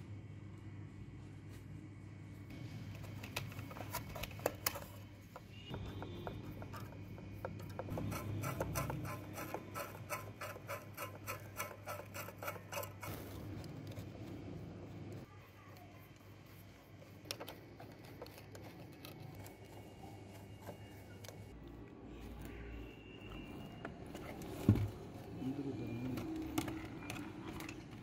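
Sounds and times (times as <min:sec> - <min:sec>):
screwdriver scraping plastic: 0:03.2 - 0:14.4, 0:17.0 - 0:21.6.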